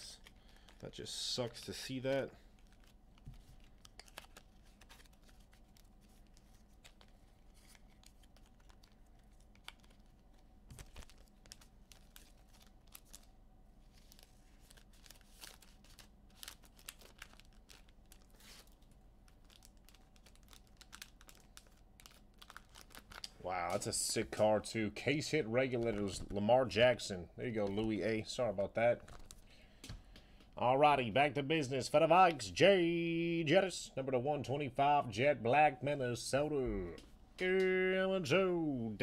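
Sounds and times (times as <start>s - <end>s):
clicks and crinkling of packaging: 0.0s - 13.3s, 14.0s - 23.9s.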